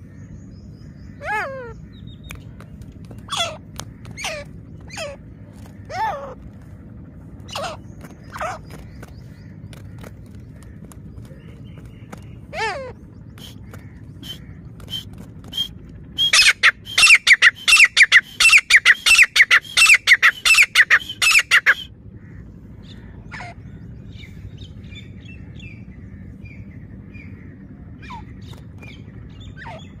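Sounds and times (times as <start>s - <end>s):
bird calling sharp repeated notes: 1.1s - 6.4s, 7.4s - 10.9s, 12.1s - 21.9s.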